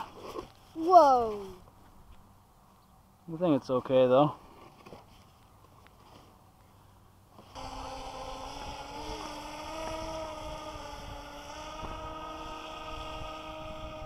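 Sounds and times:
electric motors whining: 7.4 - 14.0
wind on microphone: 7.6 - 14.0.

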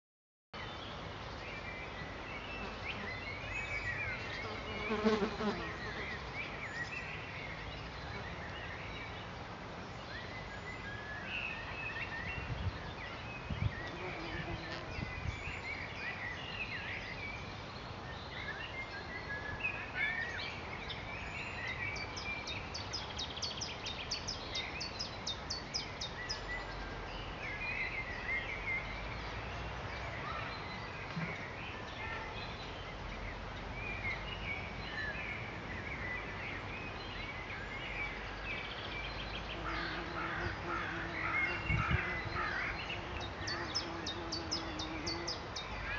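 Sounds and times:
songbirds chirping and warbling: 0.6 - 45.9
wind rumble on microphone: 12.2 - 15.7, 41.5 - 42.5.

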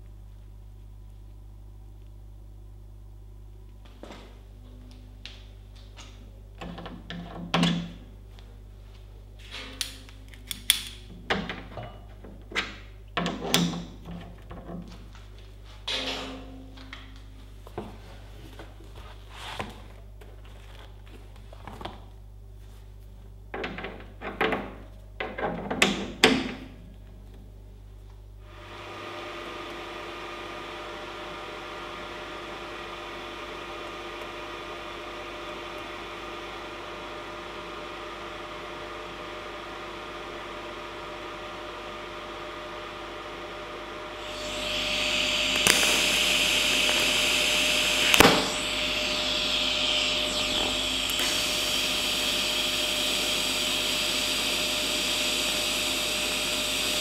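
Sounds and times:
mechanical whir with held tones: 41.2 - 57.0
bright hiss: 44.2 - 55.7.

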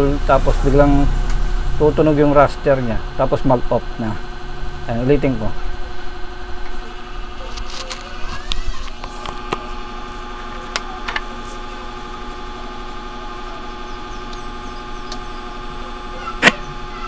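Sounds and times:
crt tv whistle and whine: 11.6 - 17.0.

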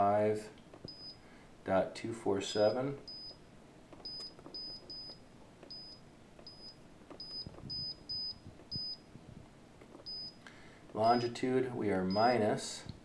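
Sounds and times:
short high keypad beeps: 3.1 - 3.4, 4.0 - 9.0, 10.0 - 10.4.

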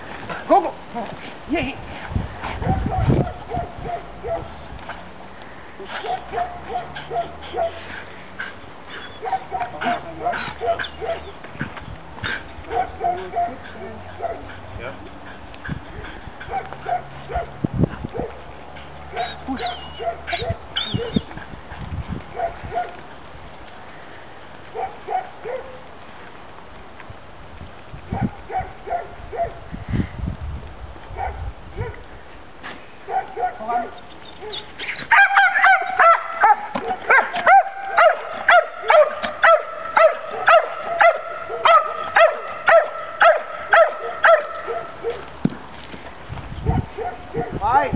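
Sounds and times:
dog yipping: 2.7 - 4.5, 8.9 - 11.3, 19.1 - 21.3, 33.1 - 45.2
dog whining: 19.2 - 21.3.

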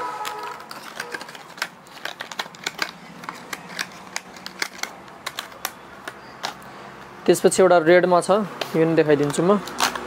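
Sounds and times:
fishing lure package clicks and rustles: 0.2 - 6.7.

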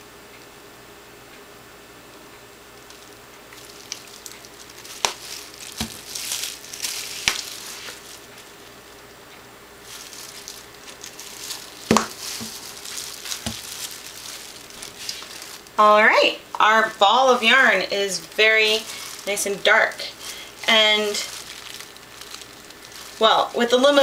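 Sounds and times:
plastic bottle crinkling and squeezing: 2.8 - 8.8, 9.8 - 15.8, 18.0 - 24.0.

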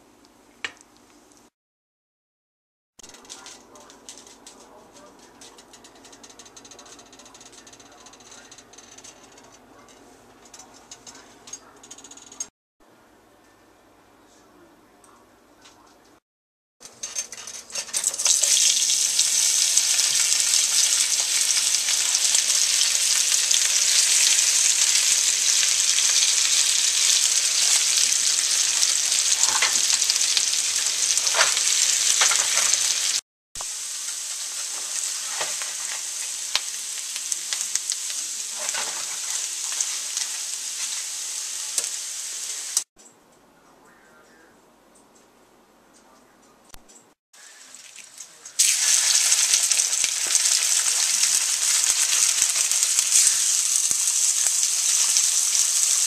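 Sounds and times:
potatoes sizzling in a skillet: 18.0 - 42.9, 47.4 - 56.0.

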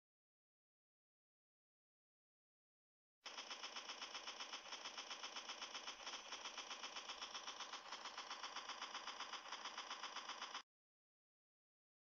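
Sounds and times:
machine gun burst: 3.3 - 10.6.

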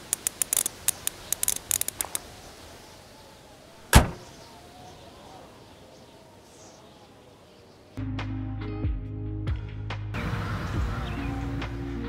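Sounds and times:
sharp clicks and taps: 0.0 - 2.2
car door slamming shut: 3.8 - 4.4.

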